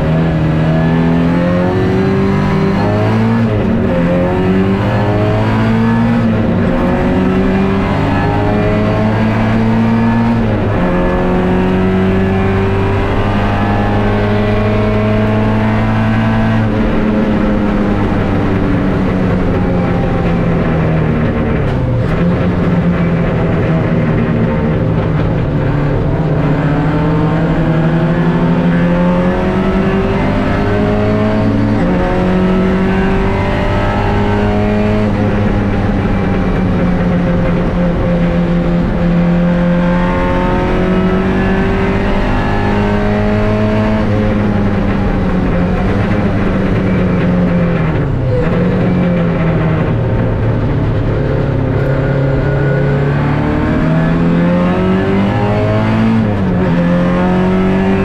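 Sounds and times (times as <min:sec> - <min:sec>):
car engine at racing speed: 0:00.0 - 0:58.0.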